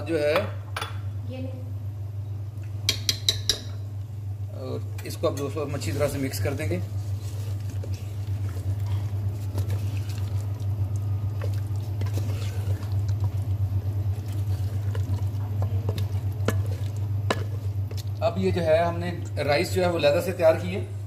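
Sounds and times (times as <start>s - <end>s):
steady low hum: 0.0s - 21.0s
wooden spoon scraping clay pot: 5.3s - 10.7s, 11.3s - 18.2s.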